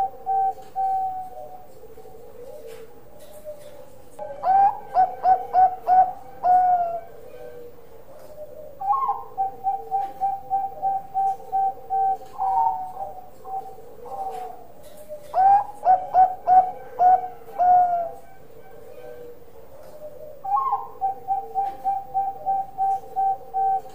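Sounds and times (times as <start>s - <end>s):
dove cooing: 0.0s - 23.9s.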